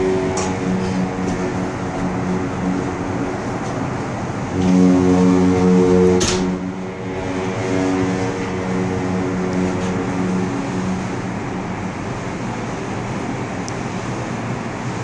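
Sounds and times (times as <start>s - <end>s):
low engine hum: 0.0s - 15.0s
rushing wind: 0.0s - 15.0s
rushing water: 1.3s - 15.0s.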